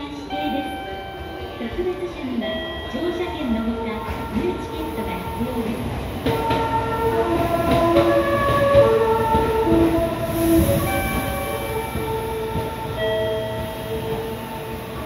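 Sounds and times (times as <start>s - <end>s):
train rumble: 0.0s - 15.0s
train musical horn melody: 3.6s - 15.0s.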